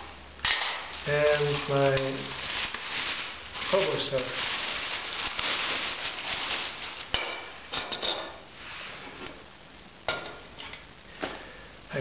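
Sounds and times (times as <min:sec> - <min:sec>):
plastic bag crinkling: 0:00.5 - 0:07.9.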